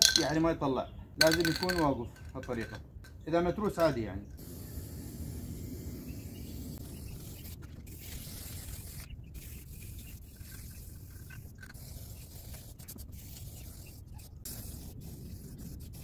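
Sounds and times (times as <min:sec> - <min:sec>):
spray paint can hissing: 0:04.4 - 0:16.0.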